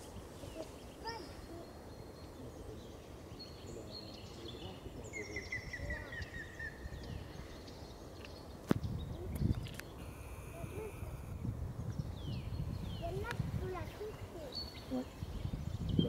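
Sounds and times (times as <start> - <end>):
songbirds calling: 0.0 - 16.0
wind: 0.0 - 16.0
woodpecker fluty notes: 9.3 - 11.4.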